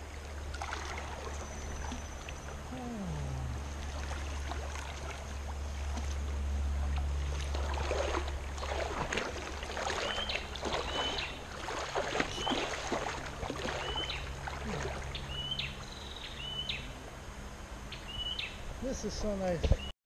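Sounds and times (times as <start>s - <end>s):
water sloshing and splashing: 0.0s - 15.9s.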